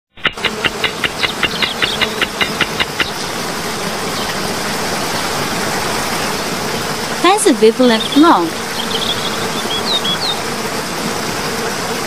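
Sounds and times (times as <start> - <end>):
quick regular ticking: 0.1 - 3.2
steady rushing hiss: 0.1 - 12.0.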